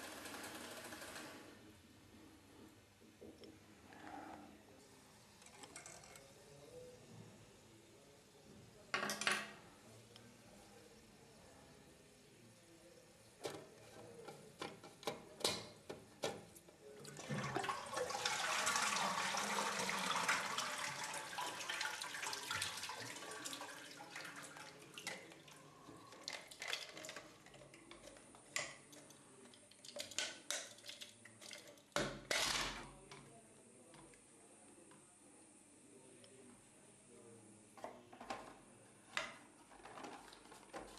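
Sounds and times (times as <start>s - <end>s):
water rushing in toilet cistern: 17.1s - 25.6s
plastic clatter: 39.2s - 40.9s.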